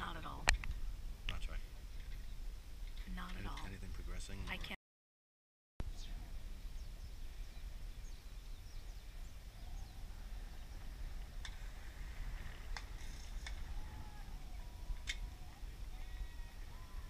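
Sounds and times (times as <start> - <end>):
faint bird chirps: 5.8 - 17.0
low steady rumble: 5.8 - 17.0.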